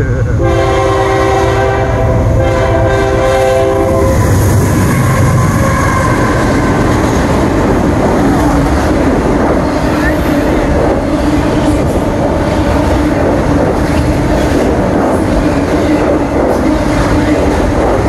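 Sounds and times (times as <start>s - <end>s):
train engine and wheels roaring: 0.0s - 18.0s
locomotive air horn chord: 0.4s - 6.6s.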